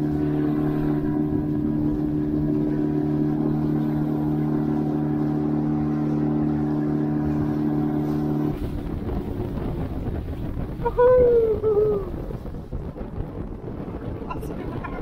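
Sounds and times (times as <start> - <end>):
outboard motor running: 0.0 - 15.0
water rushing along hull: 0.0 - 15.0
wind on microphone: 0.0 - 15.0
water splashing: 14.0 - 15.0.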